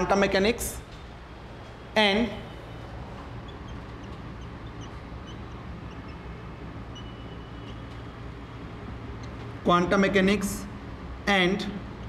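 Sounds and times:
low room hum: 0:00.0 - 0:12.0
whiteboard marker squeaking: 0:02.9 - 0:07.9.

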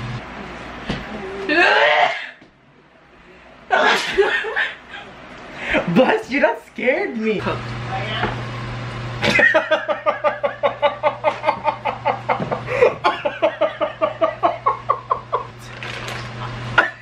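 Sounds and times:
person laughing hard: 0:03.7 - 0:05.1, 0:09.2 - 0:15.6.

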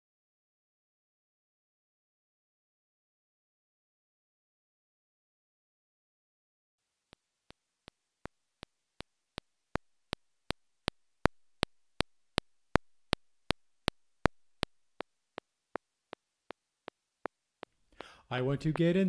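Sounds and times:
electronic metronome clicking: 0:09.4 - 0:15.5.

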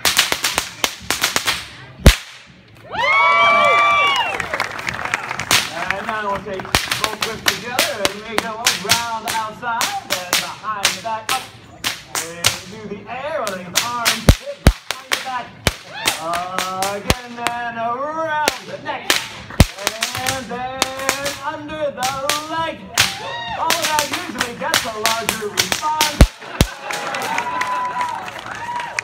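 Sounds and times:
whips cracking: 0:00.0 - 0:02.6, 0:05.4 - 0:05.9, 0:06.6 - 0:12.8, 0:13.4 - 0:17.6, 0:18.5 - 0:21.4, 0:22.0 - 0:27.1.

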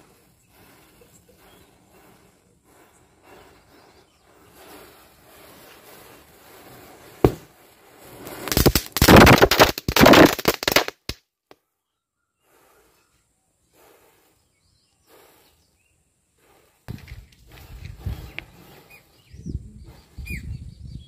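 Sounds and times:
firecracker crackling and hissing: 0:00.0 - 0:11.2, 0:12.4 - 0:20.4
firecracker fizz: 0:00.0 - 0:11.2, 0:12.4 - 0:13.0, 0:13.6 - 0:19.2
firecracker sharp crack: 0:07.2 - 0:11.2.

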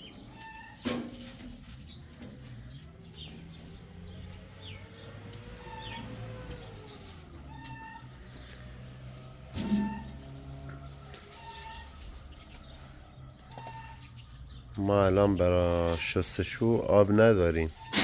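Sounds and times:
broom sweeping concrete: 0:00.0 - 0:14.2, 0:17.6 - 0:18.0
small birds chirping: 0:00.0 - 0:17.9.

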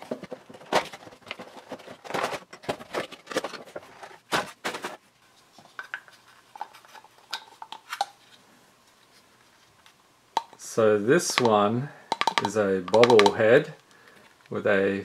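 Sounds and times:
cardboard and plastic crinkling: 0:00.0 - 0:05.1.

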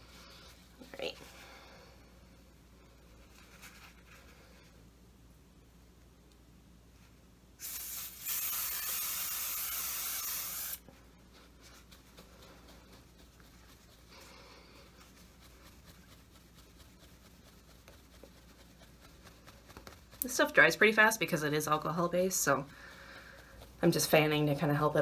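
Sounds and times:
aerosol spray hissing: 0:07.6 - 0:10.9.

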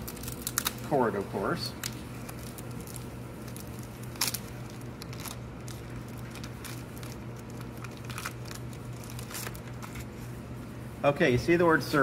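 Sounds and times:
plastic bag crinkling: 0:00.0 - 0:01.0, 0:01.8 - 0:10.3
steady low hum: 0:00.0 - 0:12.0.

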